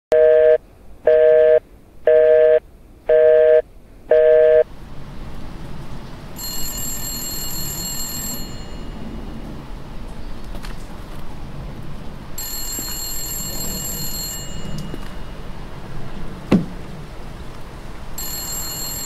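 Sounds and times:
telephone busy tone beeps: 0.1 - 4.6, 6.4 - 9.0, 12.4 - 15.2, 18.2 - 19.0
high ringing tone: 0.1 - 4.7, 6.4 - 9.3, 12.4 - 15.6, 18.2 - 19.0.

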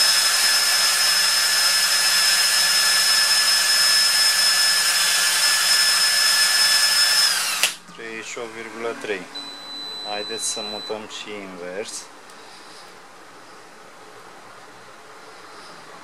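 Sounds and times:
cordless drill whining: 0.0 - 7.8.

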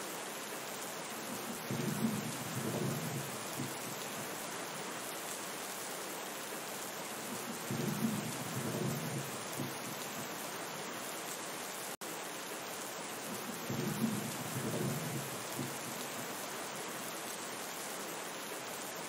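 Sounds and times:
steady rain: 0.0 - 19.0
low rumble of thunder: 1.3 - 4.0, 7.3 - 10.2, 13.3 - 16.2.

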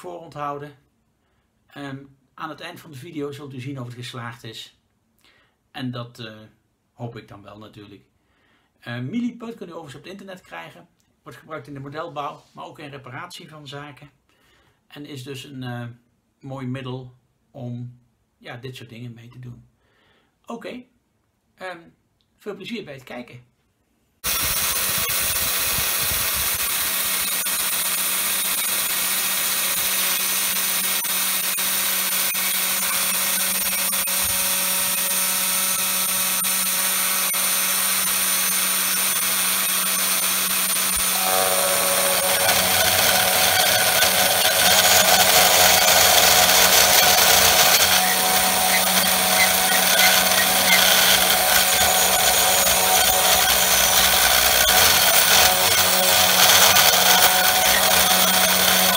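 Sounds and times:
bit milling wood: 24.2 - 58.9
router spindle whining: 24.2 - 58.9.

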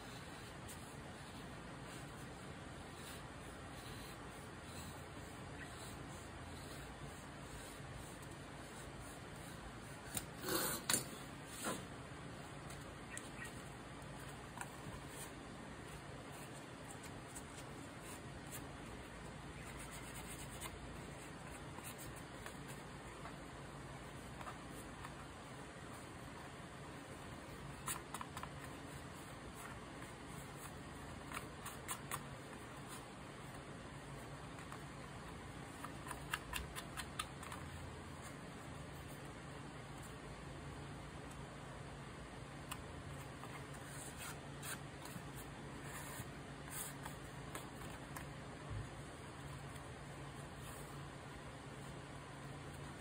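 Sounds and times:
faint steady hum: 0.0 - 53.0
faint paper touches: 43.1 - 53.0.

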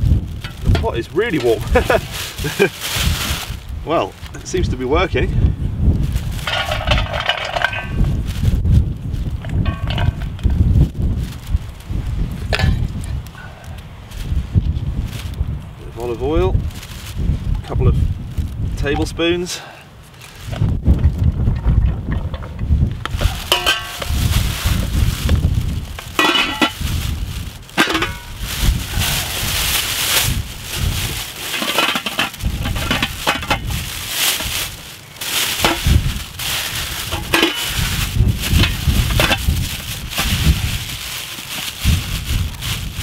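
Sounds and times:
plastic bag crinkling: 0.0 - 4.8, 16.5 - 17.4, 23.1 - 43.0
wind buffeting microphone: 0.0 - 19.4, 20.4 - 43.0.

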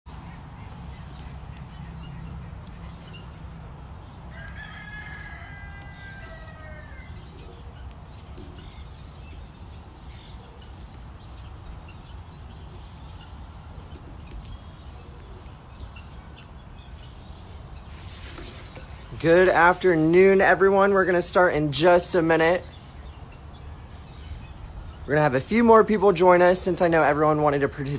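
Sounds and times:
rooster crowing: 4.3 - 7.6.

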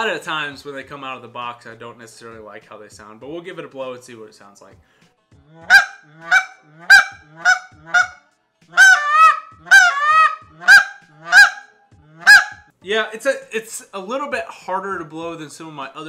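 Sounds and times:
goose call honks: 5.7 - 12.6.

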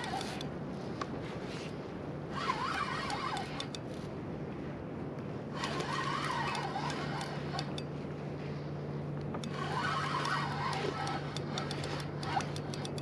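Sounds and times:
fishing reel whining: 0.0 - 0.5, 2.3 - 4.0, 5.5 - 7.9, 9.4 - 13.0
light clicks: 9.2 - 13.0.

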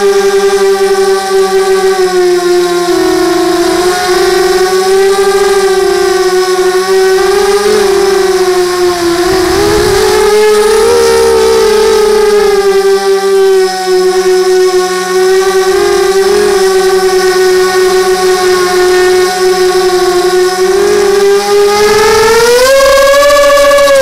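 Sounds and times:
quadcopter motors whining: 0.2 - 13.5.

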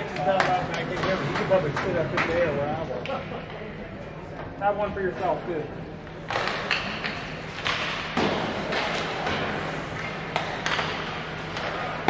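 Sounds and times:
hockey sticks knocking puck: 0.1 - 2.4, 6.1 - 12.0
puck hitting boards: 6.2 - 12.0.

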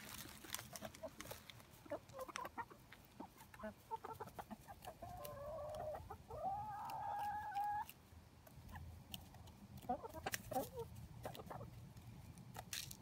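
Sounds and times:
chicken calling: 0.7 - 7.9, 9.8 - 11.8.

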